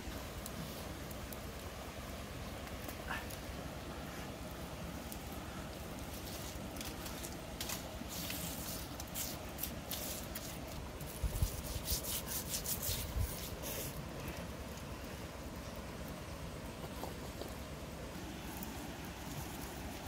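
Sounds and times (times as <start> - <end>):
hand rubbing paste into flesh: 7.6 - 14.0.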